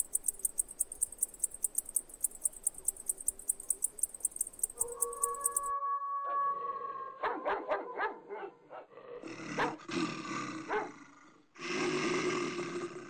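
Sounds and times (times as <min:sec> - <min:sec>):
animal barking calls: 0:04.7 - 0:11.0
animal growling: 0:08.7 - 0:13.0.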